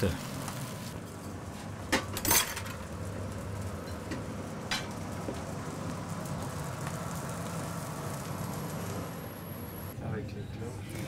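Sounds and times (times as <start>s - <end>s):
dishes clinking: 1.9s - 2.8s.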